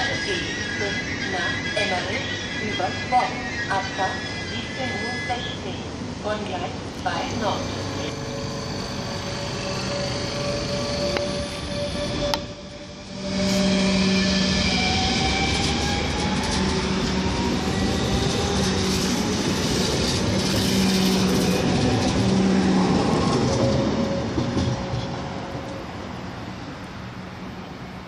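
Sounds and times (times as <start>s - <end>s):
electric train motor whine: 7.4s - 24.5s.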